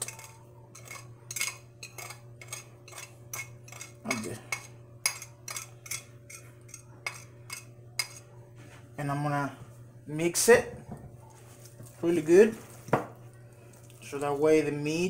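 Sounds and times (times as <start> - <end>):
fork scraping and tapping plate: 0.0 - 8.3.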